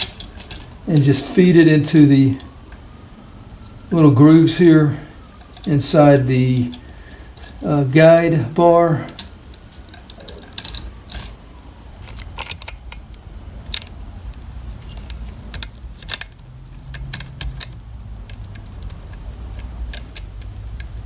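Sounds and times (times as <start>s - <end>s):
saw chain clinking and jangling: 14.7s - 15.3s.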